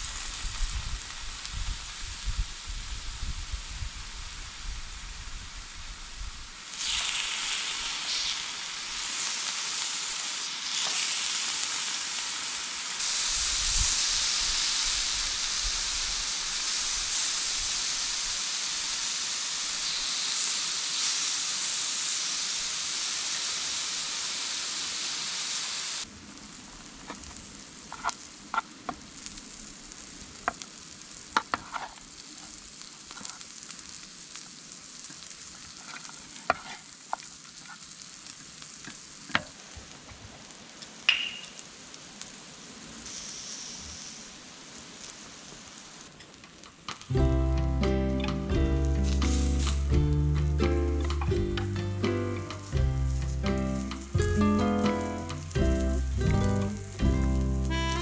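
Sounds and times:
beef sizzling on griddle: 0.0 - 58.0.

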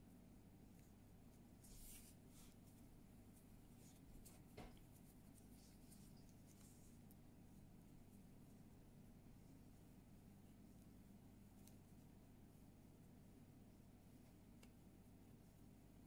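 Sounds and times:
yarn and crochet hook rustling: 0.5 - 16.0.

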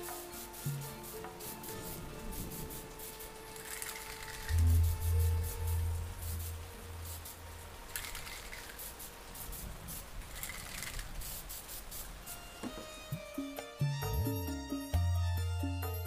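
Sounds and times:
spray paint can hissing: 0.0 - 12.9
faint background music: 0.0 - 16.0.

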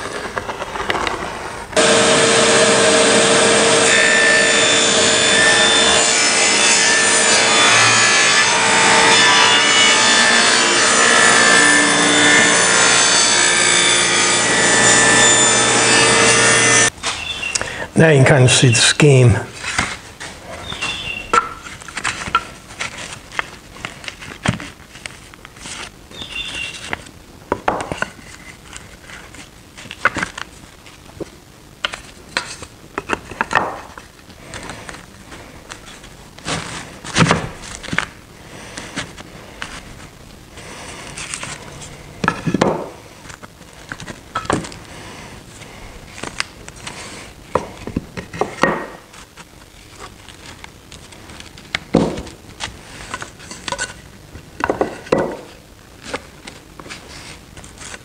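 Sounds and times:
wood clacking on wood: 54.6 - 55.5.

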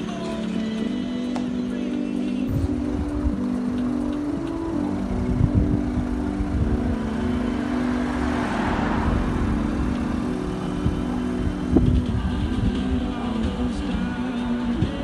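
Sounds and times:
steady low traffic rumble: 0.0 - 15.0
car passing close by: 6.2 - 12.4.

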